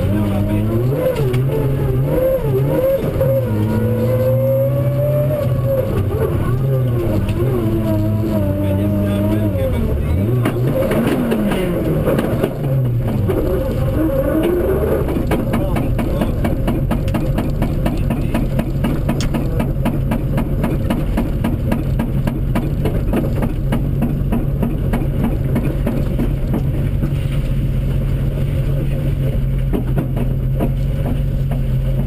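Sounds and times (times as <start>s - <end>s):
rally car engine running: 0.0s - 32.0s
stones knocking and rattling: 14.5s - 27.3s.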